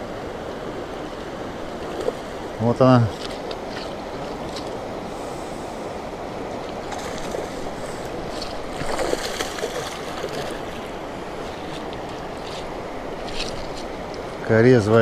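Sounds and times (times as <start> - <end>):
sharp water splashes: 6.7 - 11.0.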